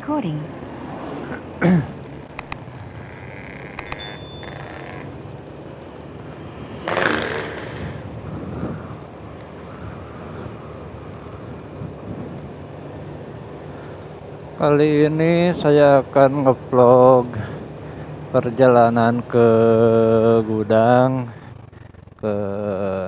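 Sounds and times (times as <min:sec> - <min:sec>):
wind and road noise: 0:00.0 - 0:22.6
motorbike engine running: 0:00.0 - 0:23.0
clicks: 0:02.3 - 0:02.6
short high ring: 0:03.8 - 0:05.0.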